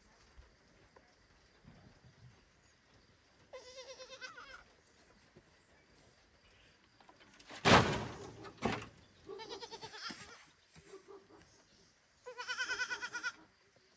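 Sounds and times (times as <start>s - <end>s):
baby goat bleating: 3.5s - 4.6s, 9.3s - 10.4s, 12.2s - 13.4s.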